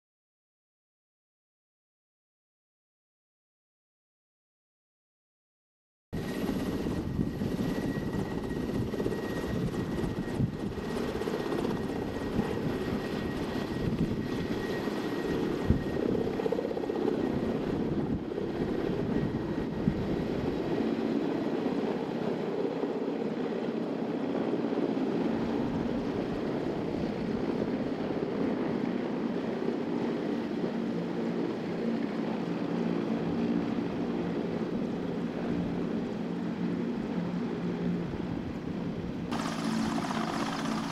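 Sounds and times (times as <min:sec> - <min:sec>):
helicopter rotors: 0:06.2 - 0:40.9
turbine engine whine: 0:06.2 - 0:40.9.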